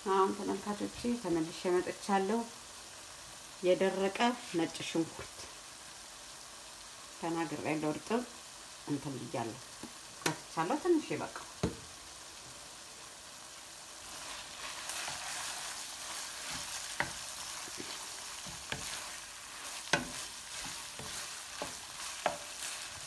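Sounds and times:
meat sizzling in a pan: 0.0 - 23.0
spoon knocking against pan: 17.0 - 17.2, 19.9 - 22.5.

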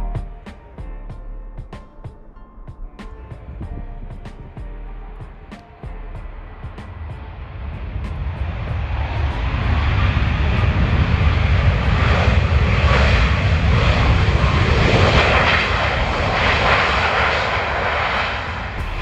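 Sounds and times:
jet engines roaring at takeoff: 5.3 - 19.0.

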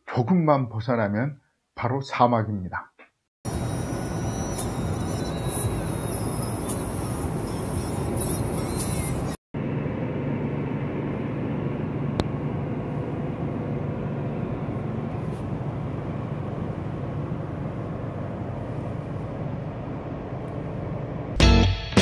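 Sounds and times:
car road and engine noise: 3.5 - 9.4
low hum: 3.5 - 21.4.

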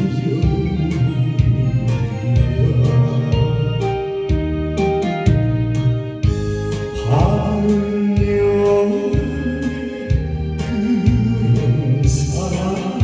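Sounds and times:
man singing into microphone: 0.0 - 4.0, 6.9 - 13.0
karaoke backing track: 0.0 - 13.0.

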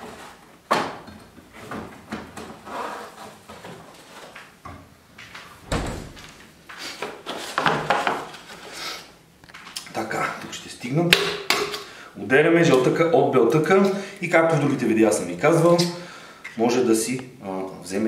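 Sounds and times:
cupboard doors and drawers shutting: 5.6 - 6.4
knocks and clatters of objects: 7.1 - 8.5.

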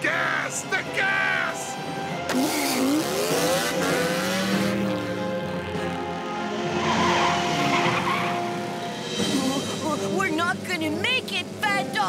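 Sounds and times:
background music: 0.0 - 12.0
cartoon car engine revving: 2.3 - 8.6.

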